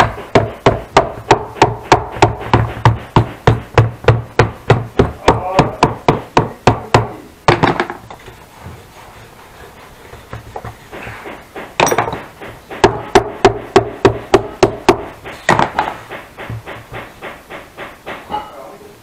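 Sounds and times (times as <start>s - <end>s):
hammer striking wood: 0.0s - 8.2s, 10.2s - 18.4s.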